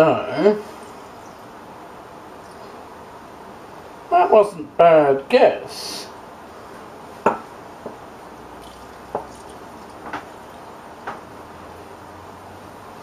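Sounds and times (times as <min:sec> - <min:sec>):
wine dripping: 0:07.2 - 0:11.3.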